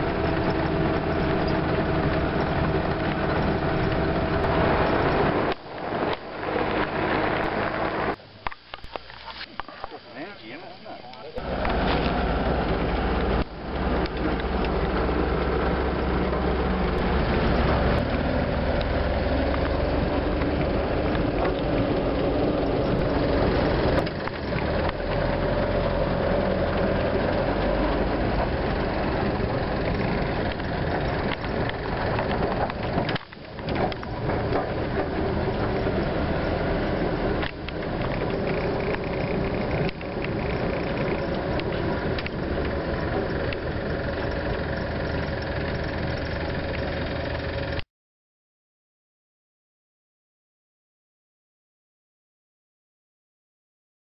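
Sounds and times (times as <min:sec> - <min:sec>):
vehicle engine and tyre noise: 0:00.0 - 0:47.8.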